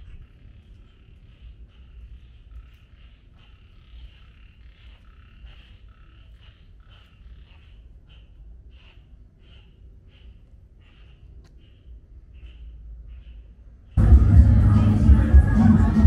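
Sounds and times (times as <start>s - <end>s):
small animals calling: 0.0s - 16.0s
steady low rumble: 11.5s - 16.0s.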